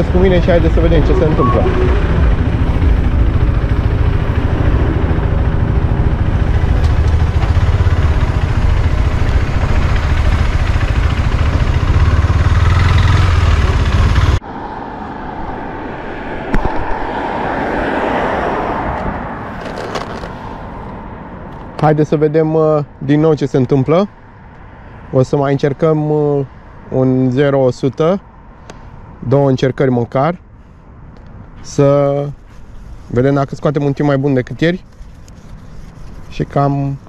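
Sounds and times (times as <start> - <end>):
motorcycle engine idling: 2.2 - 14.4.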